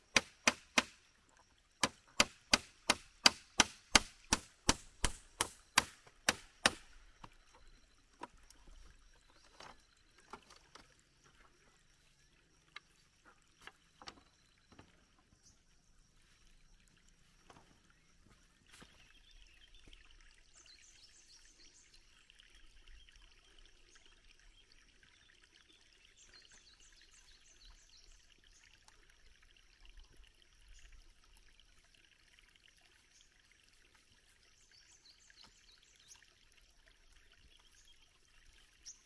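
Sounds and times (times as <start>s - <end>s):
hammer striking bamboo slats: 0.1s - 1.0s, 1.8s - 6.8s
knocks of bamboo being handled: 0.1s - 1.0s, 1.8s - 7.4s.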